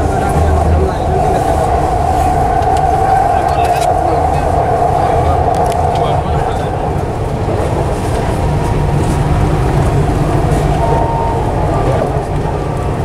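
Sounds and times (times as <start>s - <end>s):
train interior low rumble: 0.0s - 13.0s.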